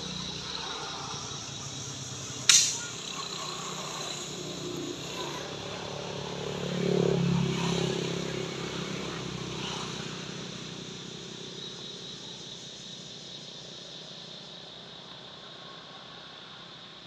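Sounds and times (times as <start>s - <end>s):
vehicle engine passing by: 0.0s - 12.0s.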